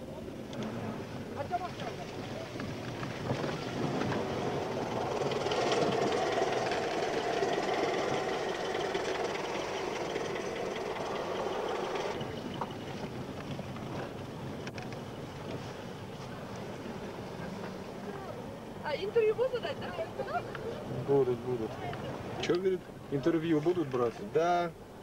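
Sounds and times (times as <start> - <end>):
car engine and tyres from inside: 0.0 - 19.4.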